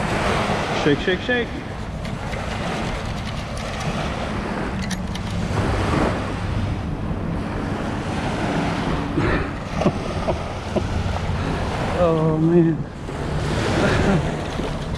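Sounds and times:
beach surf: 0:00.0 - 0:14.9
wind buffeting microphone: 0:00.0 - 0:14.9
sand rattling in metal scoop: 0:02.0 - 0:04.0.

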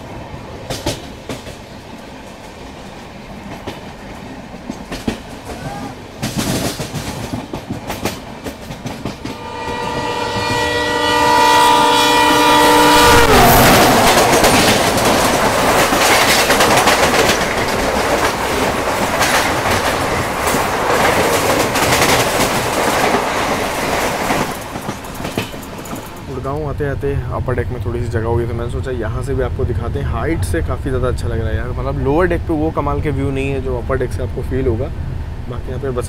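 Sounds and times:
train wheels clattering over rail joints: 0:00.6 - 0:10.6, 0:13.6 - 0:26.3
locomotive horn chord: 0:09.2 - 0:14.6.

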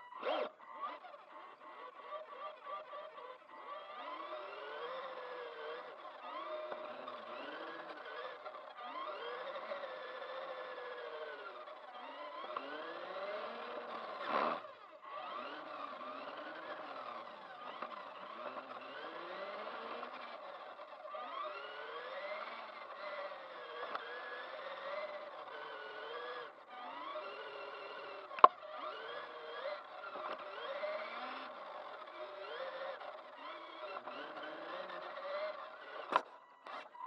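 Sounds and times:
toy car electric motor whining: 0:00.0 - 0:37.0.

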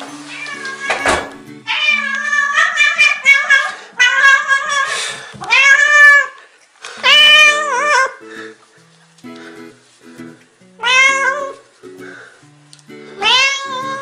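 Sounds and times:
cat meowing: 0:00.3 - 0:06.4, 0:07.0 - 0:08.2, 0:10.8 - 0:11.6, 0:13.2 - 0:14.0.

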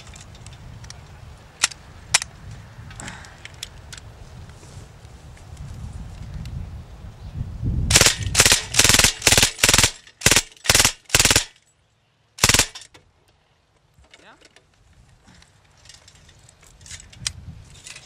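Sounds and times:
machine gun firing bursts: 0:07.9 - 0:11.5, 0:12.4 - 0:12.8.

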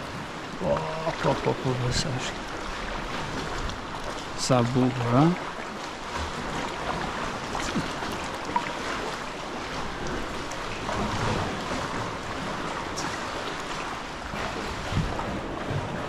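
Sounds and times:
seawater washing and sloshing: 0:00.0 - 0:16.0.

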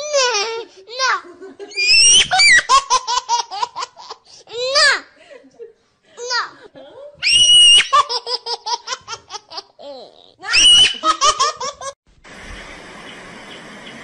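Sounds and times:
person squealing and laughing: 0:01.7 - 0:02.7, 0:07.2 - 0:08.1, 0:10.4 - 0:12.0
faint steady hiss: 0:12.1 - 0:14.0.

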